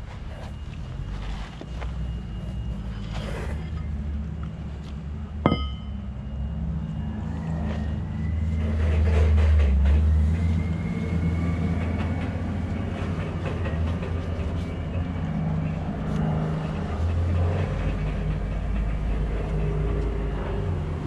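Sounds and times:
low machine drone: 0:00.0 - 0:21.0
metal shaft clanking on concrete: 0:05.4 - 0:06.0.

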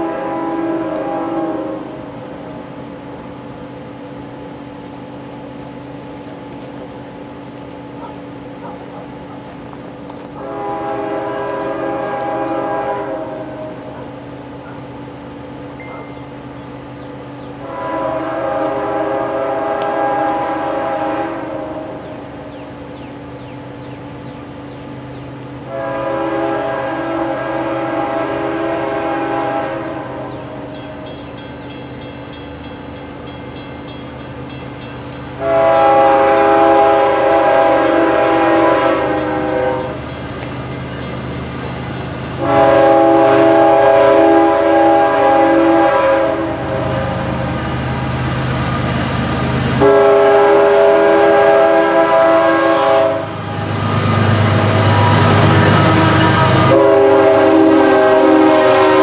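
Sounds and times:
locomotive air horn blasts: 0:00.0 - 0:02.2, 0:10.4 - 0:14.0, 0:17.6 - 0:22.3, 0:25.6 - 0:30.8, 0:35.4 - 0:40.0, 0:42.4 - 0:47.5, 0:49.8 - 0:59.0
train rumble: 0:00.0 - 0:59.0.

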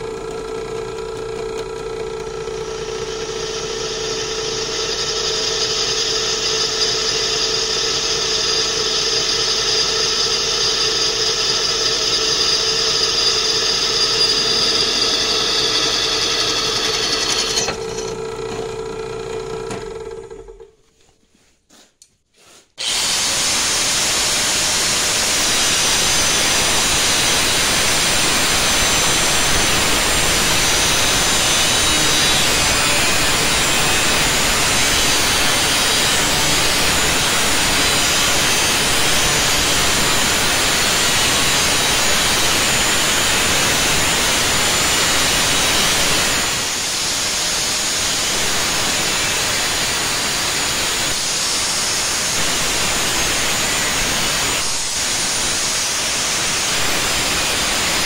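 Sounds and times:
drill press motor hum: 0:00.0 - 0:20.7
drill bit cutting whine: 0:01.5 - 0:18.8, 0:22.8 - 0:58.0
angle grinder cutting metal: 0:02.5 - 0:18.6, 0:22.8 - 0:58.0.

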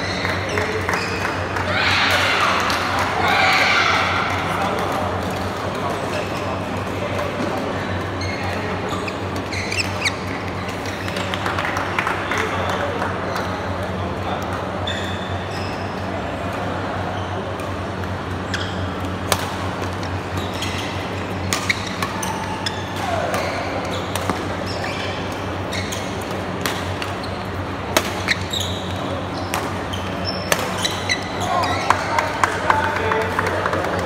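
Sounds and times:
shoes squeaking on court: 0:05.0 - 0:11.4, 0:14.7 - 0:33.2
rackets striking shuttlecock: 0:17.6 - 0:27.3, 0:27.9 - 0:31.2.

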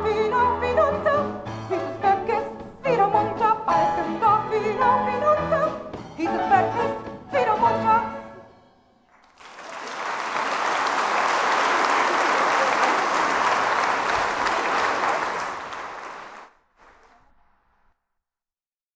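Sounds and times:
audience applauding: 0:09.1 - 0:17.3.

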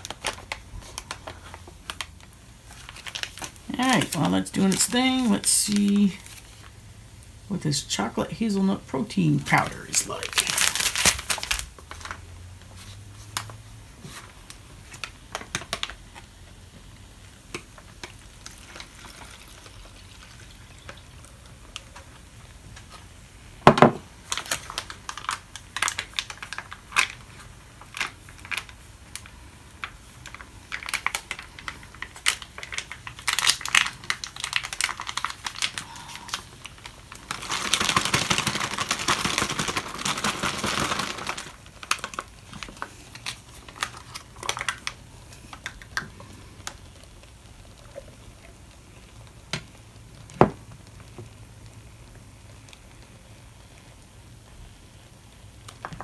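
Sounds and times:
plastic packets crinkling: 0:00.0 - 0:06.7, 0:09.0 - 0:23.0, 0:23.7 - 0:49.8
packet tearing open: 0:02.7 - 0:06.5, 0:09.9 - 0:12.2, 0:30.3 - 0:45.0.

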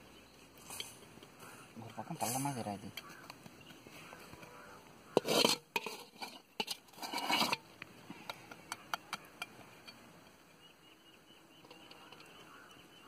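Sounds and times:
metal skimmer scraping a pot: 0:04.4 - 0:10.0.

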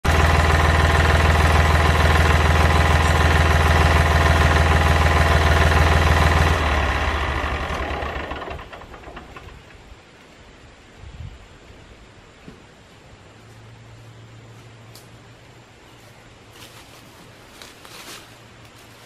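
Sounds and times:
tractor diesel engine running: 0:00.0 - 0:09.8.

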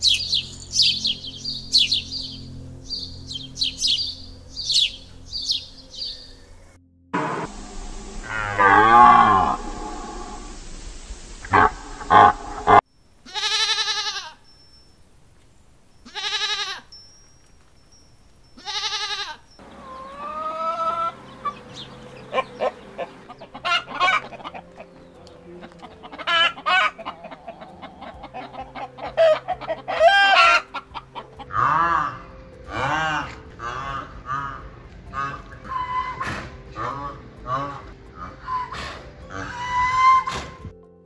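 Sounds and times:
deer bleating: 0:11.5 - 0:14.4, 0:16.1 - 0:16.9, 0:18.6 - 0:21.6, 0:25.7 - 0:40.6
hens clucking and cackling: 0:19.6 - 0:40.7.

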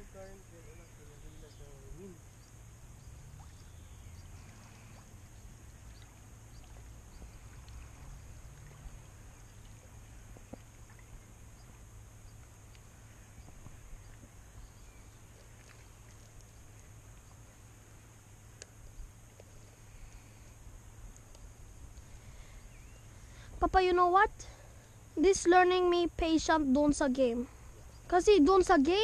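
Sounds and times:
faint high hiss: 0:00.0 - 0:29.0
light ticks: 0:12.2 - 0:12.9, 0:18.6 - 0:19.5, 0:21.1 - 0:22.1.

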